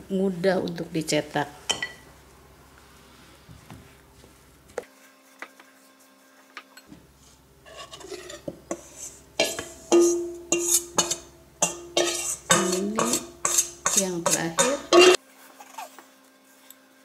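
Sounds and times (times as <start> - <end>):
spoon scraping metal bowl: 7.6 - 15.9
metal bowl ringing: 9.4 - 15.2.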